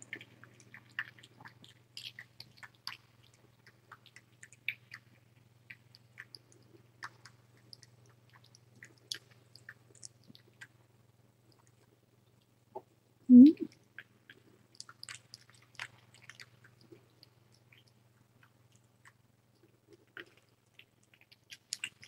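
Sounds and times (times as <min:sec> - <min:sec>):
kitten suckling wet clicks: 0:00.0 - 0:10.8, 0:13.7 - 0:22.0.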